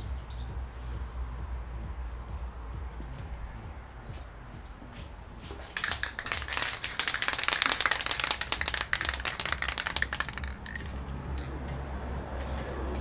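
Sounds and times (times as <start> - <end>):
spray can ball rattling: 5.4 - 11.6.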